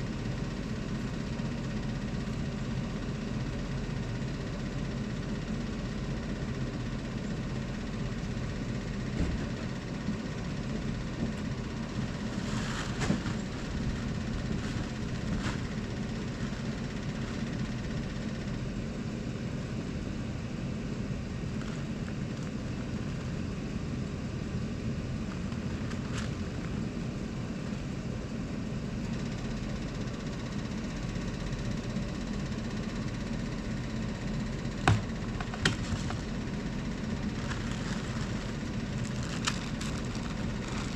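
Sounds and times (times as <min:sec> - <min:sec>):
truck engine idling: 0:00.0 - 0:40.9.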